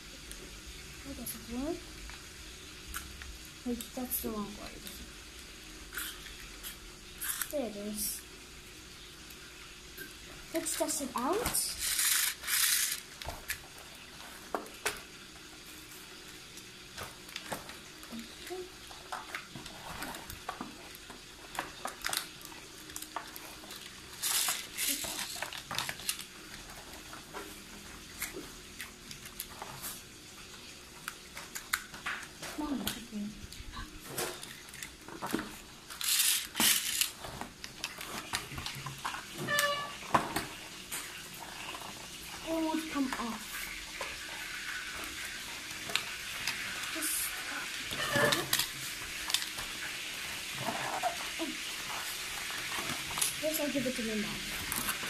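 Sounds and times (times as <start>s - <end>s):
small plastic parts clicking: 11.8s - 13.6s, 21.6s - 26.3s, 34.4s - 37.2s
plastic packaging crinkling: 16.6s - 30.1s, 34.0s - 42.6s.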